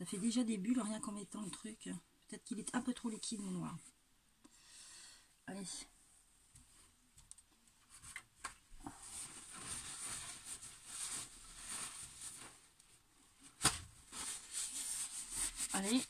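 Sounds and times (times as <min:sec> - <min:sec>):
faint clicks and knocks: 0:06.5 - 0:08.6
paper towel rustling and rubbing: 0:08.9 - 0:16.0.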